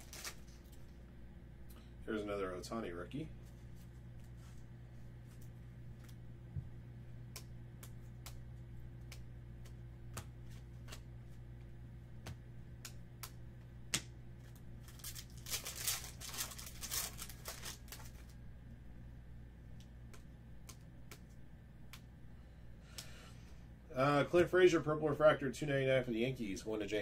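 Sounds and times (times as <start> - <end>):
foil pack tearing and crinkling: 0.0 - 0.7, 14.8 - 18.4
cards being flicked: 7.2 - 16.1, 19.7 - 22.1.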